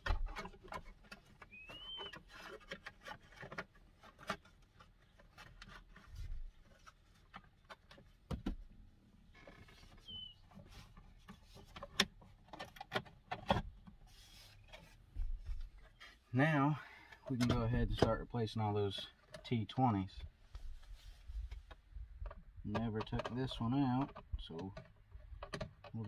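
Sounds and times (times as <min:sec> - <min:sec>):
plastic clicks and knocks: 0:00.0 - 0:05.8, 0:21.5 - 0:26.0.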